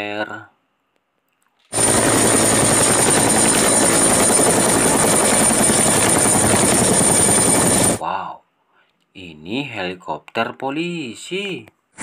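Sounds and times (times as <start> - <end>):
helicopter high whine: 1.7 - 8.0
helicopter rotor beat: 1.7 - 8.0.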